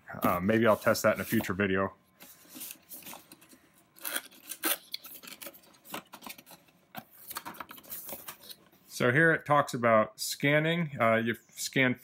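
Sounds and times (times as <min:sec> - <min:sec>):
cardboard rustles and scrapes: 0:00.2 - 0:01.6.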